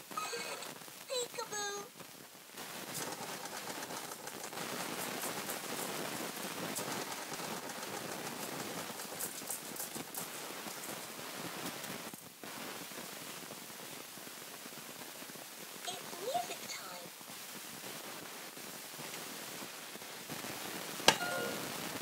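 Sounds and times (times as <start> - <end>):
plastic roller ball rattling: 2.6 - 11.1.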